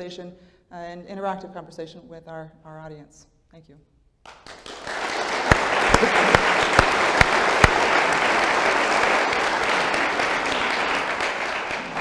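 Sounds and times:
close hand claps: 0:04.2 - 0:12.0
audience applause: 0:04.3 - 0:12.0.

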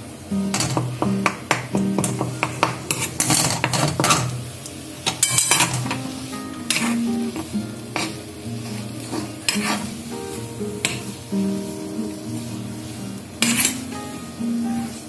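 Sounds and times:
oil sizzling: 0:00.0 - 0:15.0
steel spoon scraping a pan: 0:02.0 - 0:04.4, 0:05.0 - 0:10.1, 0:10.8 - 0:11.2, 0:12.1 - 0:14.3
background music: 0:05.9 - 0:15.0.

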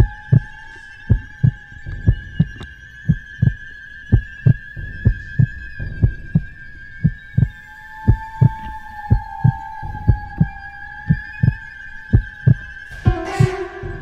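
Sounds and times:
heartbeat thumps: 0:00.0 - 0:00.5, 0:01.1 - 0:10.5, 0:11.1 - 0:14.0
steady high ringing tone: 0:07.3 - 0:14.0.

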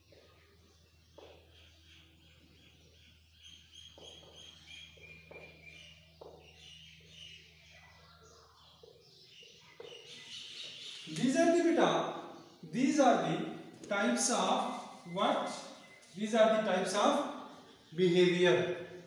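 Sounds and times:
marker squeaking on whiteboard: 0:09.7 - 0:11.8, 0:12.4 - 0:18.4
marker strokes: 0:12.8 - 0:17.3.

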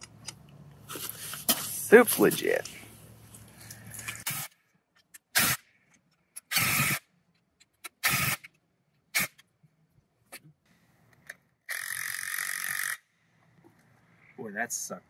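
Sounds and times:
impact driver bursts: 0:06.4 - 0:07.0, 0:08.0 - 0:08.5.

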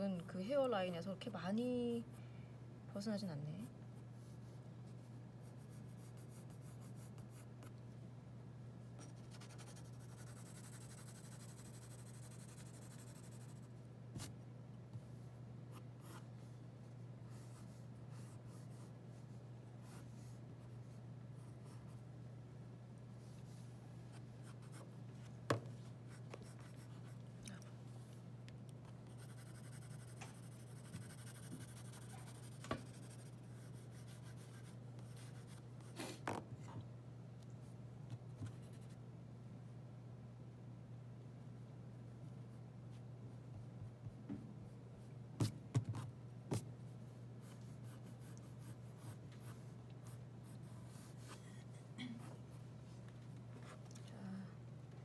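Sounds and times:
steady low hum: 0:00.0 - 0:55.0
pencil scratching on paper: 0:09.0 - 0:14.3, 0:29.1 - 0:35.9.

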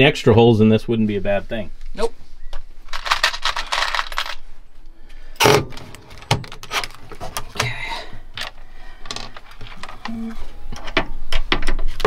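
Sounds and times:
small hard parts clinking: 0:02.9 - 0:04.5, 0:05.4 - 0:10.9.

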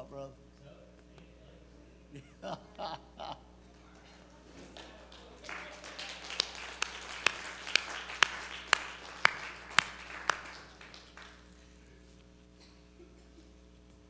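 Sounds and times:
scattered applause-like noise: 0:03.7 - 0:11.7
person clapping steadily: 0:04.8 - 0:11.5.

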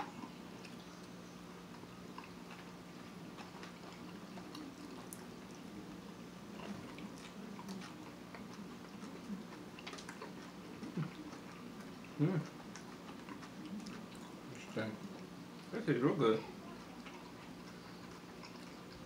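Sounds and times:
close-up chewing: 0:00.0 - 0:19.0
low steady hum: 0:00.0 - 0:19.0.

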